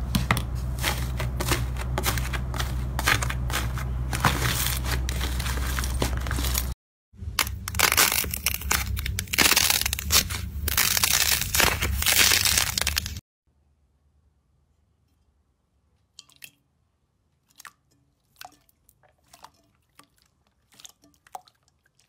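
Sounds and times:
slime crackling: 7.4 - 13.2.

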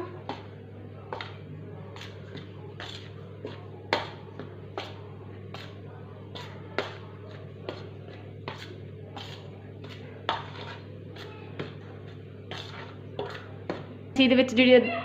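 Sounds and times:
steady low hum: 0.0 - 15.0
scrapes and taps on steel bowl: 6.4 - 10.8, 12.5 - 13.9.

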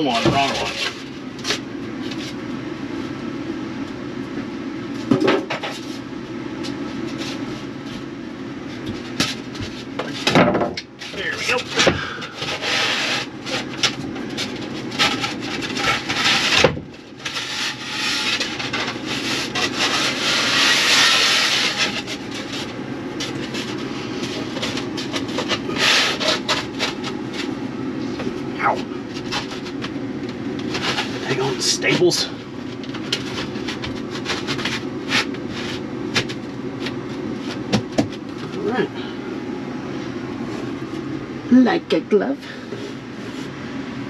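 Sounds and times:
knocks and thumps: 8.9 - 10.8, 37.6 - 38.2
foam scraping against wood: 12.4 - 13.8, 14.4 - 27.6, 30.6 - 32.0.

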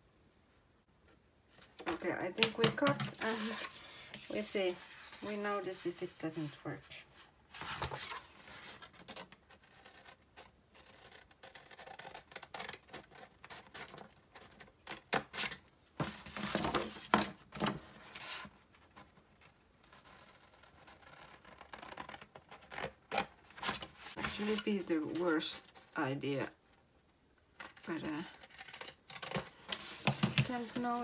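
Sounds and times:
paper rustling: 2.7 - 6.6, 7.2 - 9.3, 23.5 - 25.8, 29.3 - 31.0.

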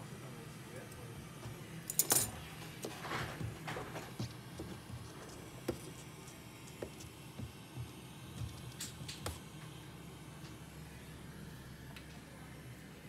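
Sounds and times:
small tools clicking and tapping: 8.4 - 9.4.

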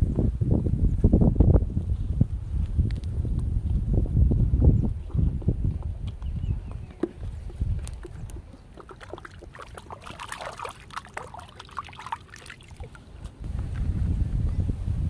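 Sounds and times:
wind rumble on microphone: 0.0 - 10.7, 12.8 - 15.0
water splashing and dripping: 7.0 - 13.4.

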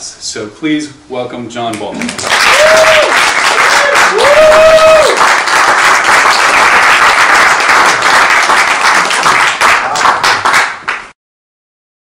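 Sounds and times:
audience applauding: 2.0 - 11.2.

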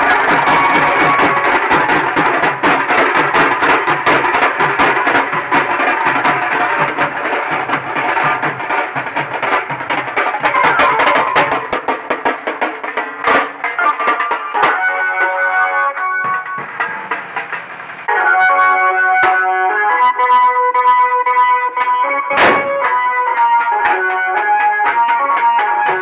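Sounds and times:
marching snare drums: 0.0 - 18.1, 21.8 - 26.0
melody: 10.4 - 12.2, 13.8 - 16.8.

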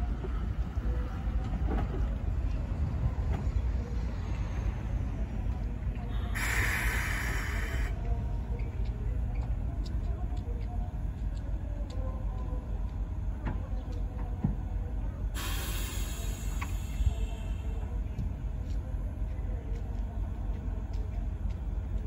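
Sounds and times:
compressed air hissing: 6.3 - 8.0, 15.4 - 17.2.

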